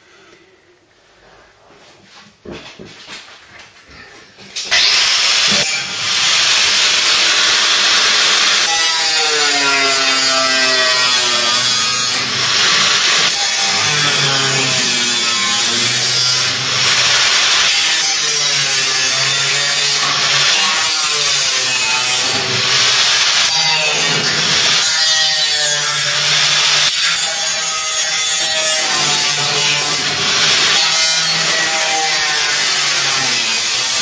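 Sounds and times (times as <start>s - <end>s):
power tool motor hissing: 4.7s - 25.0s.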